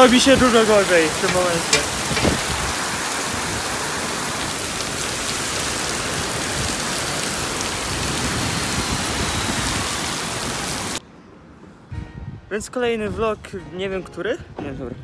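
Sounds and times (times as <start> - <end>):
heavy rain on pavement: 0.0 - 11.0.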